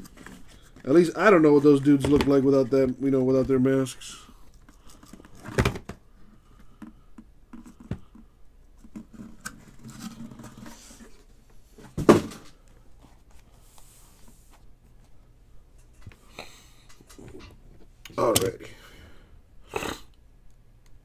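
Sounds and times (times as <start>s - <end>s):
boxes rustling and clicking: 0.0s - 6.1s, 7.6s - 13.5s.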